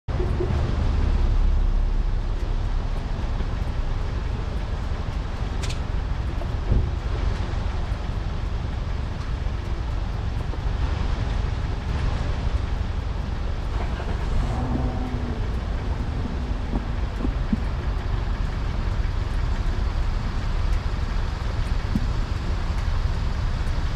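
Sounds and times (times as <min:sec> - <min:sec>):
wind on microphone: 0:00.2 - 0:23.9
sharp tick: 0:02.2 - 0:11.0, 0:14.3 - 0:23.8.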